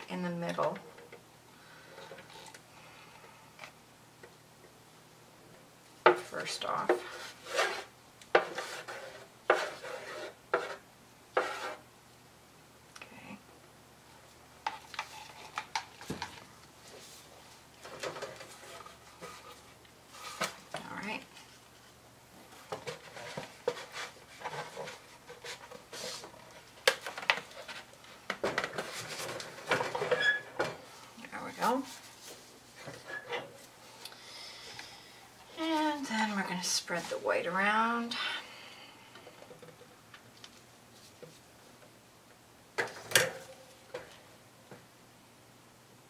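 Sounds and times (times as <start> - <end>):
spreader scraping wood panel: 6.8 - 10.8, 11.4 - 11.8.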